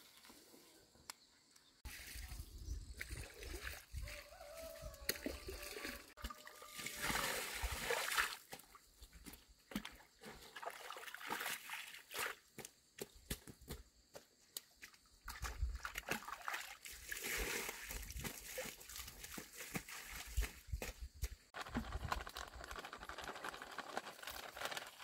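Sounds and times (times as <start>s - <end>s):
water splashing and sloshing: 1.8s - 12.7s, 14.8s - 22.2s
water trickling off concrete: 15.3s - 25.0s.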